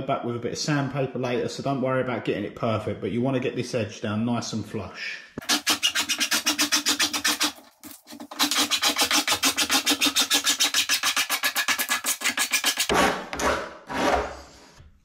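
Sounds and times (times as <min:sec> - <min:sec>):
hand file rasping: 0:05.4 - 0:12.9.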